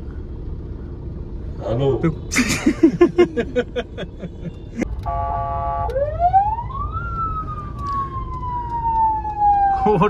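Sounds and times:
car engine running: 0.0s - 5.2s
police-style siren wail: 5.8s - 10.0s.

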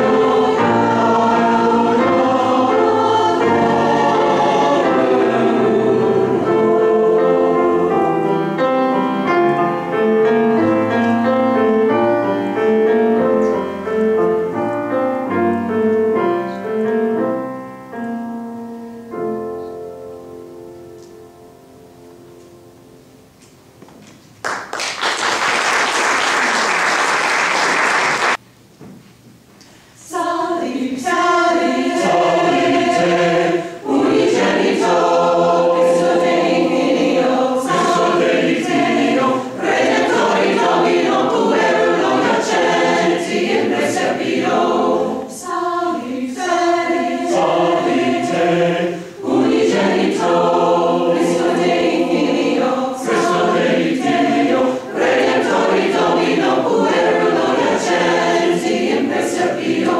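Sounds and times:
mixed choir singing: 0.0s - 13.7s, 30.0s - 59.9s
audience applause: 24.4s - 28.4s.

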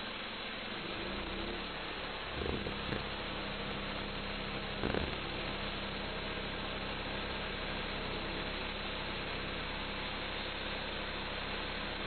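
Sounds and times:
gas engine running: 0.0s - 12.0s.

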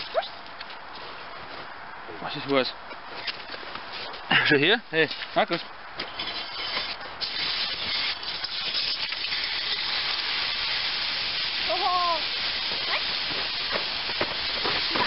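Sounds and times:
steady hiss: 6.1s - 15.0s.

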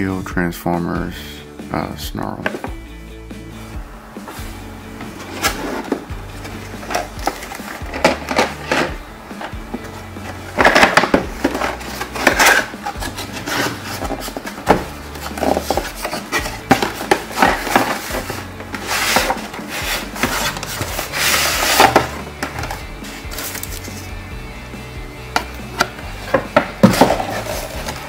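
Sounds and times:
cardboard flaps scraping: 4.2s - 24.1s, 25.8s - 28.0s
hand rustling inside box: 4.4s - 24.1s.

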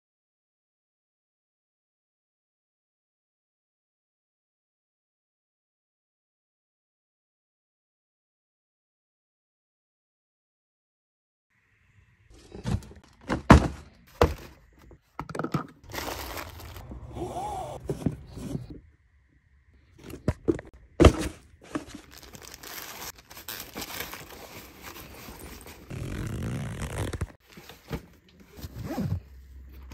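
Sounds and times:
cardboard box thunks: 12.6s - 14.6s
cardboard scraping and rustling: 15.9s - 18.7s.

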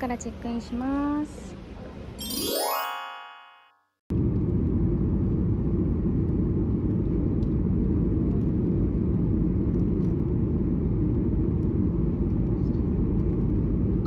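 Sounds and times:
airliner cabin engine rumble: 4.1s - 14.0s.

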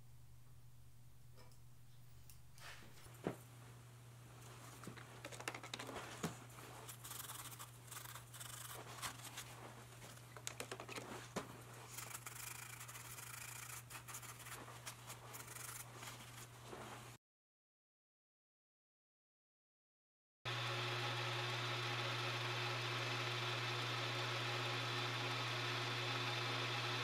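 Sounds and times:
hands scratching and rubbing metal: 5.2s - 16.6s.

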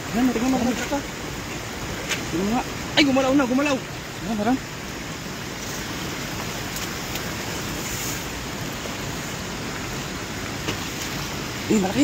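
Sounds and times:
running water rushing: 0.0s - 12.0s.

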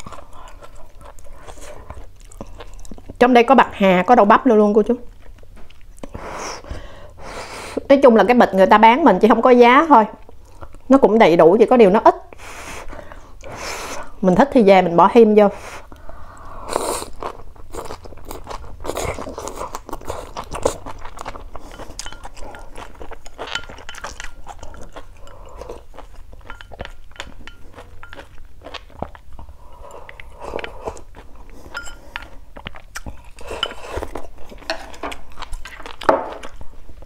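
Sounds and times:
crunchy chewing of vegetables: 0.0s - 3.3s, 15.6s - 37.0s.

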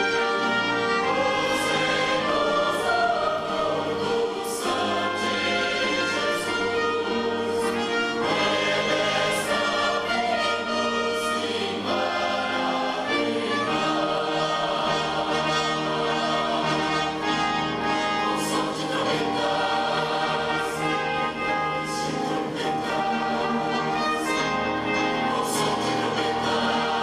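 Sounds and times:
choir singing: 0.0s - 27.0s
string orchestra: 0.0s - 27.0s.

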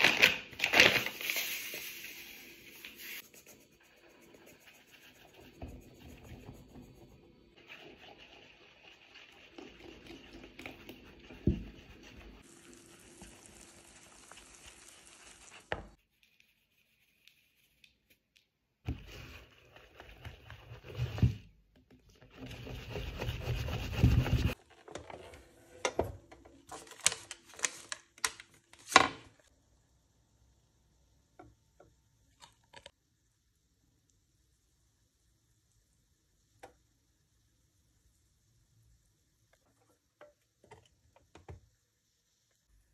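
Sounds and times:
flour pouring into plastic bowl: 12.4s - 15.8s.

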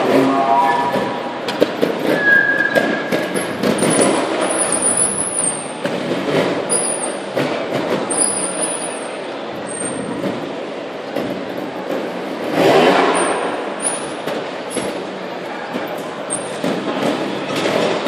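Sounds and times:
crowd noise: 0.0s - 18.0s
short high squeals: 2.1s - 3.1s.

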